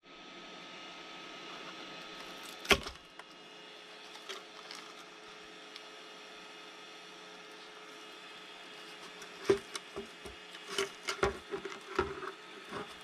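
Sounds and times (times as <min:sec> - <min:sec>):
low steady hum: 0:00.0 - 0:13.0
plastic part cracking loose: 0:02.5 - 0:03.0.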